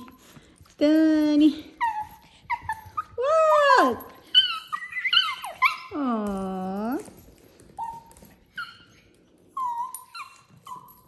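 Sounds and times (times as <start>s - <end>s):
small dogs whining: 1.7s - 6.1s, 6.9s - 11.0s.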